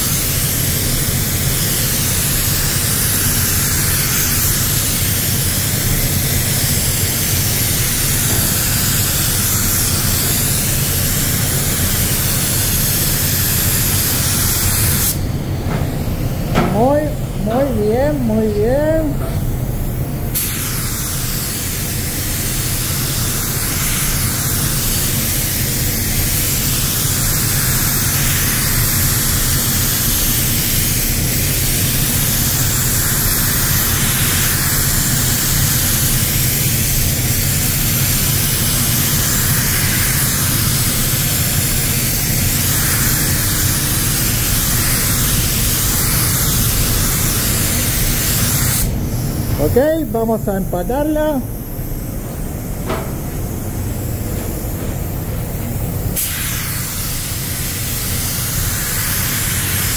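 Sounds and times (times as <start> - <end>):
spray gun air hiss: 0.0 - 59.9.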